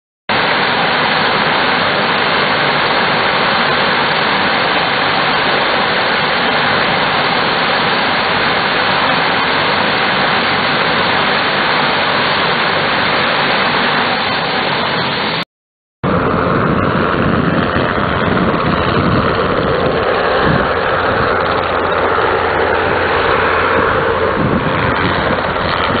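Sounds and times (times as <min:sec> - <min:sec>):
turboprop engines running: 0:00.3 - 0:15.4, 0:16.0 - 0:26.0.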